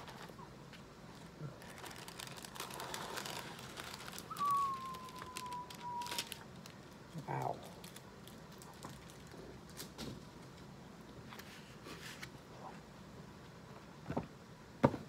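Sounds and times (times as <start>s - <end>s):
plastic film rustling: 0.0s - 10.4s
thin whistle-like tone sliding down: 4.3s - 6.3s.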